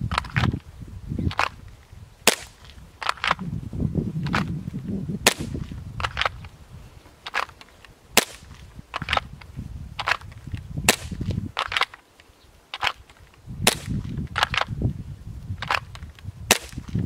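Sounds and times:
wind rumbling on microphone: 0:00.0 - 0:17.0
airsoft pistol pops: 0:02.3 - 0:03.4, 0:05.2 - 0:06.5, 0:10.9 - 0:12.0, 0:13.6 - 0:14.7, 0:15.6 - 0:17.0.

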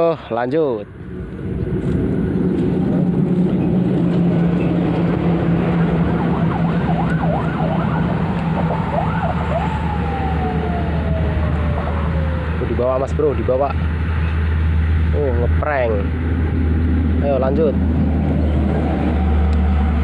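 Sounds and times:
traffic rumble: 0:00.0 - 0:20.0
wavering siren-like tone: 0:04.6 - 0:13.2.

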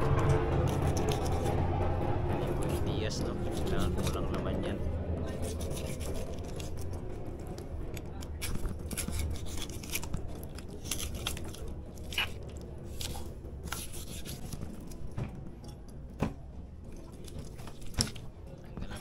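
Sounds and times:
low hum: 0:00.0 - 0:19.0
knife slicing raw meat: 0:08.2 - 0:14.8.

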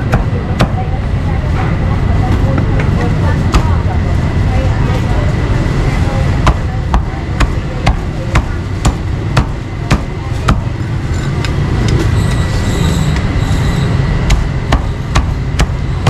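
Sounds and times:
low traffic rumble: 0:00.0 - 0:16.0
cleaver chopping meat: 0:06.5 - 0:10.7, 0:14.3 - 0:15.9.

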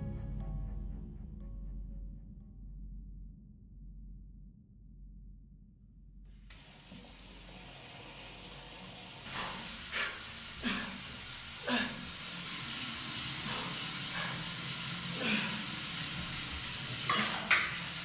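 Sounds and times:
faint low rumble: 0:00.0 - 0:06.5
running water rushing: 0:06.5 - 0:18.0.

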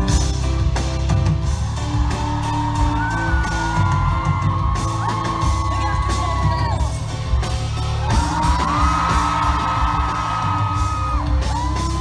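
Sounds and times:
pop music with heavy bass beat: 0:00.0 - 0:12.0
audience whooping and screaming: 0:01.2 - 0:12.0.

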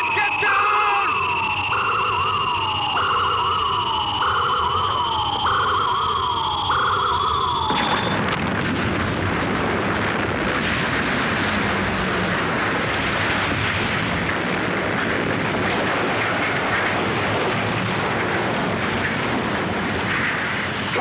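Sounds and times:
electronic warning alarm: 0:00.0 - 0:08.3
rising whine: 0:00.0 - 0:14.3
loud explosion noise: 0:07.5 - 0:20.4.

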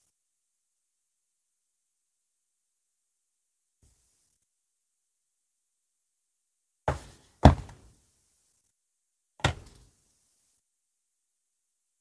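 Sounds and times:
dull knocks on cardboard box: 0:06.9 - 0:07.9.

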